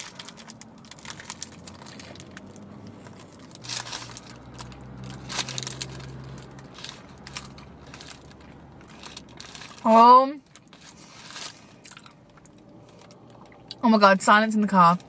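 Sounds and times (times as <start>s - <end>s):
paper wrapper crinkling: 0.0s - 13.3s
chewing with small crunches: 10.4s - 13.8s.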